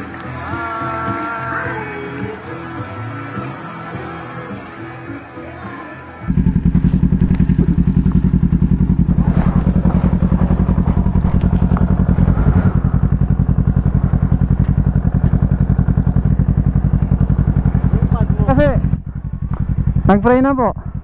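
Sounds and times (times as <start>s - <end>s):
motorcycle engine idling: 6.3s - 21.0s.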